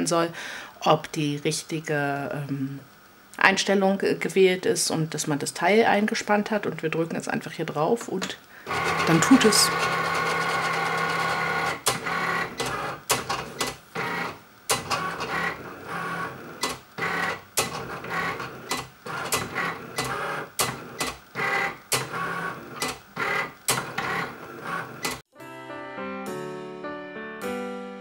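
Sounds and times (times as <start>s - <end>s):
cutting machine motors whirring: 8.7s - 25.2s
machine clicks: 8.7s - 25.2s.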